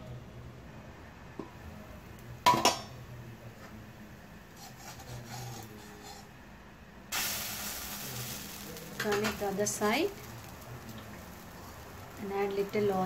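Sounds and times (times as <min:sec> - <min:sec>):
spatula scraping a pan: 0:04.6 - 0:06.3
food sizzling in a pan: 0:07.1 - 0:13.0.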